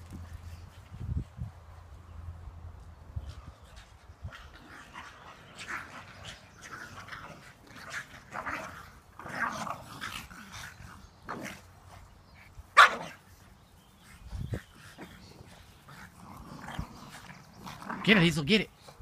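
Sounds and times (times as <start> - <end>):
dogs growling and barking: 4.2 - 13.6, 14.4 - 18.2.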